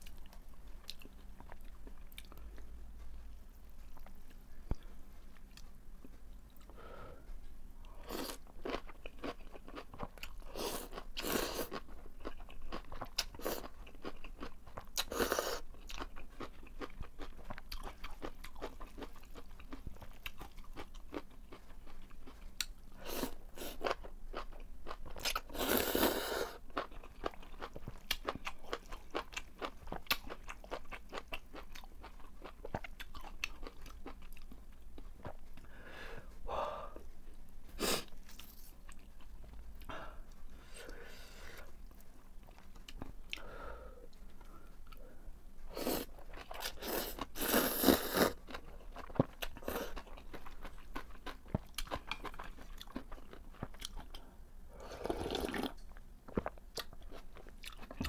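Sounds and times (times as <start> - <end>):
wet chewing: 45.9 - 54.2
slurping noodles: 46.8 - 48.4, 54.8 - 55.8.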